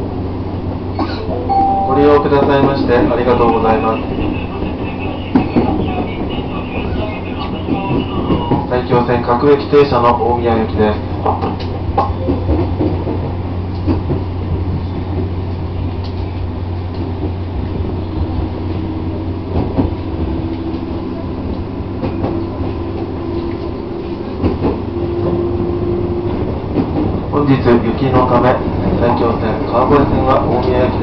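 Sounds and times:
train rumbling inside car: 0:00.0 - 0:31.0
humming tone: 0:01.3 - 0:02.5
rail-joint clicks: 0:11.2 - 0:14.3.

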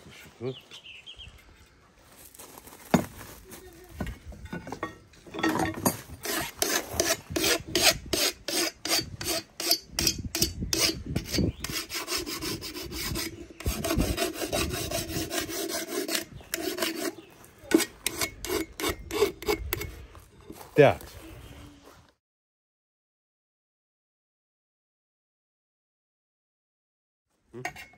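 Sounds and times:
rapid scraping strokes: 0:10.7 - 0:20.1
continuous rubbing: 0:10.8 - 0:22.1.

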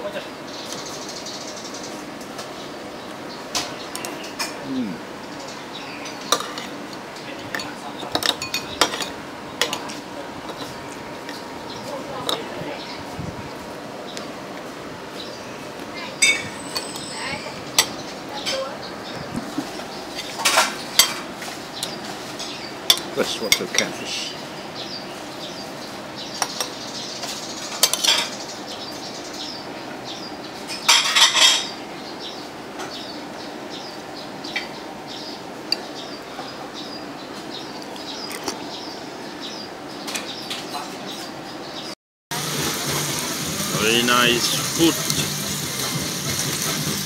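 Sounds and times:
steady background noise: 0:00.0 - 0:47.0
cutlery clinking on plates: 0:06.3 - 0:06.7, 0:07.5 - 0:10.8, 0:19.4 - 0:23.9, 0:26.4 - 0:28.4, 0:30.7 - 0:31.8.

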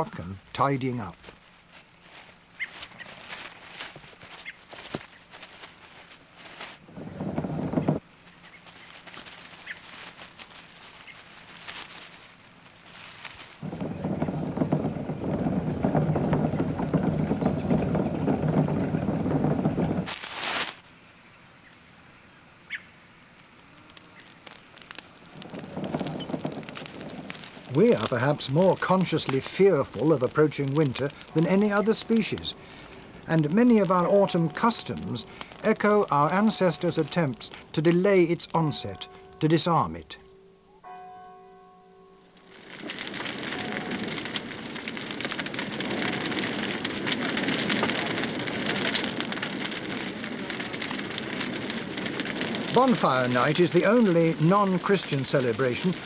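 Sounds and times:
bonfire crackling: 0:00.0 - 0:56.0.

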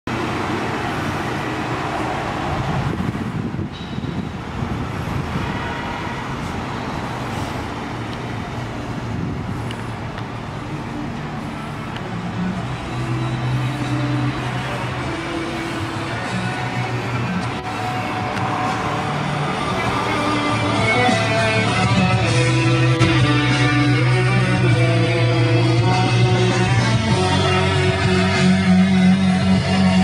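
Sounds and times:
road traffic: 0:00.0 - 0:30.0
steady low tones: 0:07.6 - 0:30.0.

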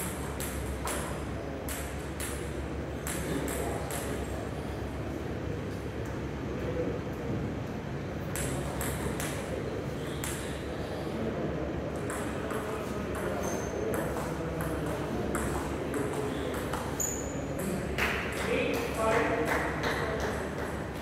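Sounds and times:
table tennis ball clicking: 0:00.0 - 0:04.2, 0:08.3 - 0:09.5, 0:10.2 - 0:10.5.

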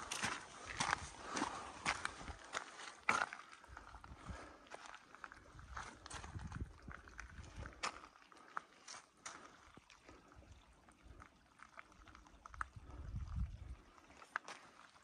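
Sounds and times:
footsteps on loose gravel: 0:00.0 - 0:08.1
wind rumble on microphone: 0:05.5 - 0:07.8, 0:12.4 - 0:13.9.

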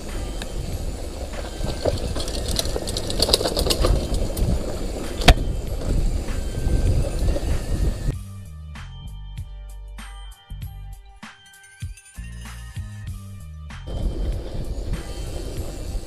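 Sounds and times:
bike rattling and clicking: 0:00.0 - 0:08.1, 0:13.9 - 0:16.0
bike tyres rumbling on dirt: 0:00.0 - 0:08.1, 0:13.9 - 0:16.0
wind on microphone: 0:00.0 - 0:08.2, 0:13.9 - 0:16.0.

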